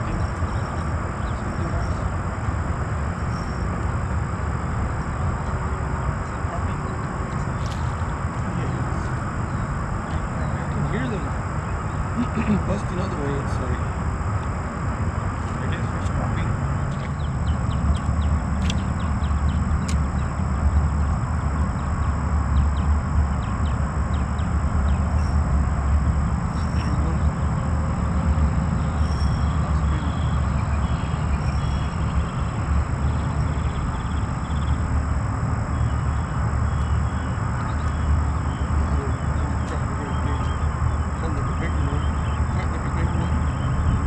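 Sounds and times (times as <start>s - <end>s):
low outdoor rumble: 0.0s - 44.0s
faint ticks: 17.9s - 19.1s.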